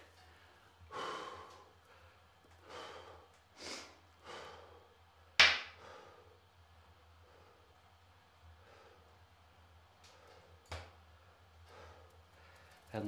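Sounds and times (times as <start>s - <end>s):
man breathing out heavily: 0.9s - 4.9s.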